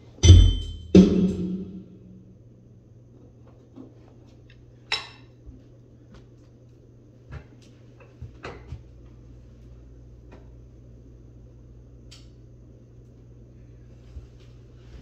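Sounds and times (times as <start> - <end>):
steady low hum: 0.0 - 15.0
ringing metallic clink: 0.2 - 1.0.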